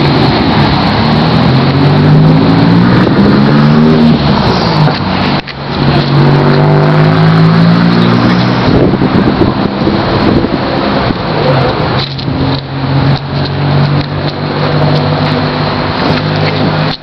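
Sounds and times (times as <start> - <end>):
car engine revving: 0.0 - 17.0.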